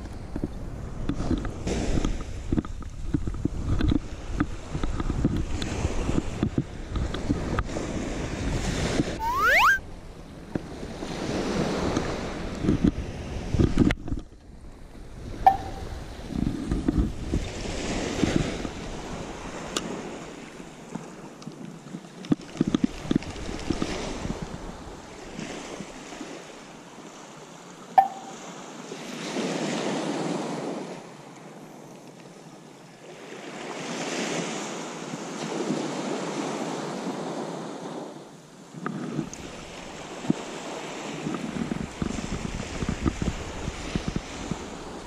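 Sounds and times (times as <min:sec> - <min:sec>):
wind rumbling on microphone: 0:00.0 - 0:26.5, 0:38.7 - 0:45.0
small waves breaking on beach: 0:00.6 - 0:09.8, 0:10.4 - 0:45.0.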